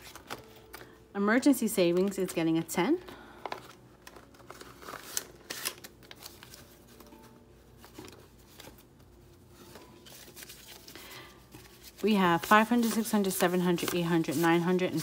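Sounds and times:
banknotes rustling and flicking: 0.0s - 1.0s, 1.9s - 15.0s
plastic envelope crinkling: 3.1s - 15.0s.

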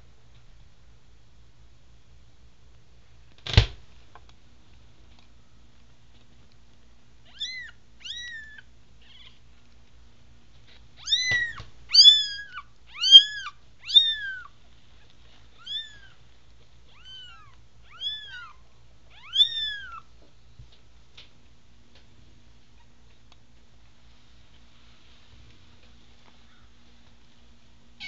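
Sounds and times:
kitten mewing: 7.3s - 9.4s, 11.0s - 14.5s, 16.9s - 20.1s.

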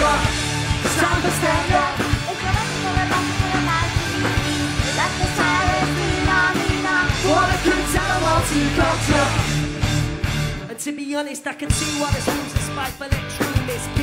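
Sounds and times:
person singing: 0.0s - 9.5s, 10.7s - 14.0s
electric guitar: 0.0s - 10.9s
bass: 0.0s - 14.0s
drums: 0.0s - 14.0s.

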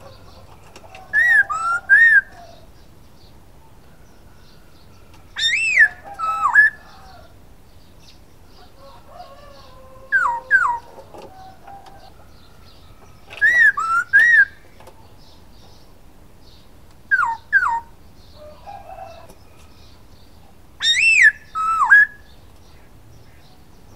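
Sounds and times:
bird singing swooping whistles: 13.4s - 14.6s, 20.8s - 22.3s.

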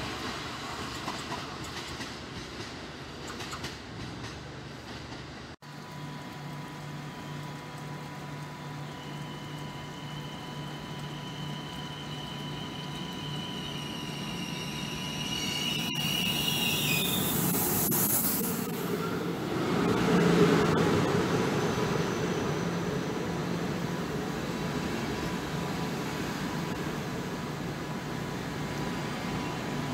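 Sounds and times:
train wheels rushing: 0.0s - 5.6s
electric locomotive hum: 0.0s - 29.9s.

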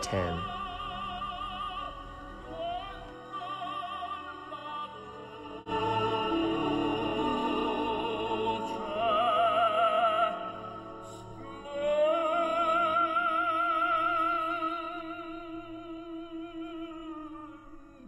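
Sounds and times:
orchestral accompaniment: 0.0s - 13.9s
opera singing: 0.0s - 18.0s.

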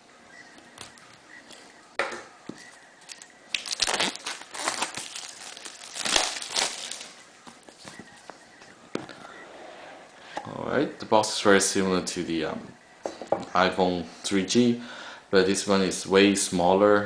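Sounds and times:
plastic wrap crinkling: 3.0s - 8.0s.

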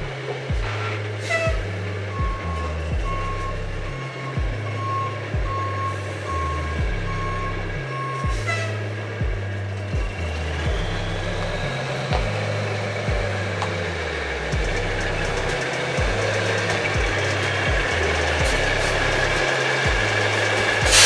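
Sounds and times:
low pulsing sound: 0.0s - 21.0s
truck backup alarm beeping: 0.0s - 21.0s.

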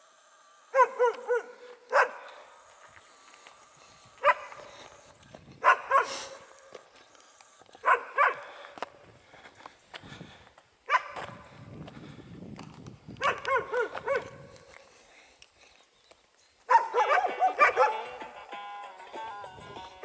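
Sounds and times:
dogs barking: 0.7s - 2.4s, 4.2s - 4.7s, 5.6s - 6.6s, 7.8s - 8.6s, 10.9s - 11.4s, 13.2s - 14.4s, 16.7s - 18.3s.

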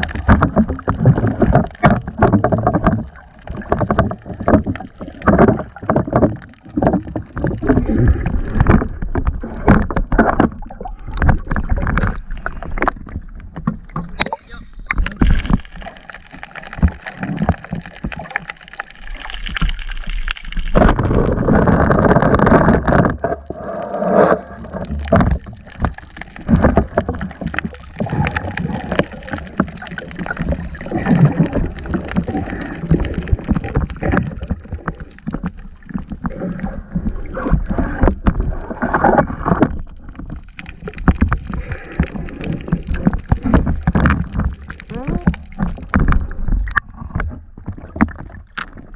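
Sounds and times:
knocks and clicks of diving gear: 0.0s - 7.8s, 8.5s - 15.6s, 42.8s - 48.9s
muffled underwater noise: 41.5s - 47.3s.

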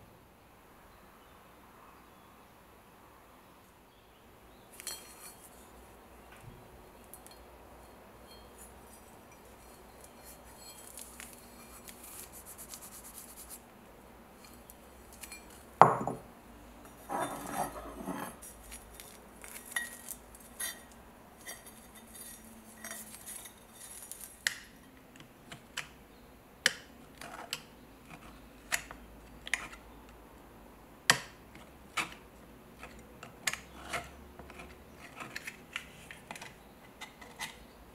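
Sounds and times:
rustling: 8.3s - 13.6s, 16.9s - 24.5s.

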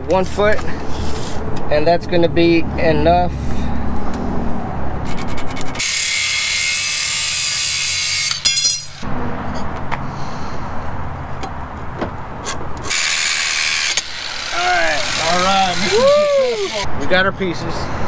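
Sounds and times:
angle grinder cutting metal: 5.2s - 9.1s, 12.8s - 16.9s.

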